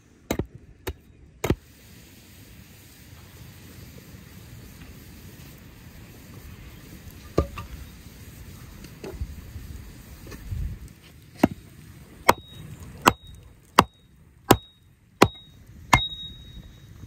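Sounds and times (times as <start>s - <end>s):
hatchet chopping wooden stake: 0.3s - 1.6s, 12.2s - 16.3s.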